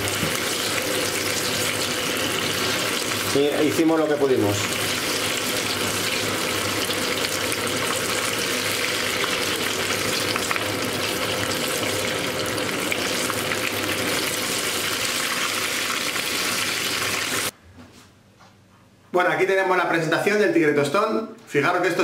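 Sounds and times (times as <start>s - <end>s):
oil sizzling while deep-frying: 0.0s - 17.5s.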